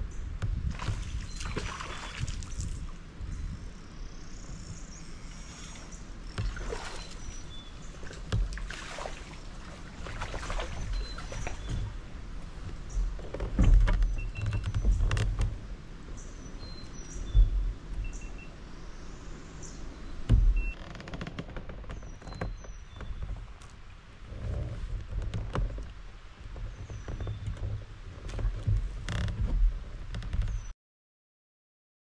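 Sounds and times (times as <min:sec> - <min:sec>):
water splashing around kayak: 0:00.3 - 0:03.2, 0:04.5 - 0:30.7
low rumbles: 0:09.4 - 0:30.7.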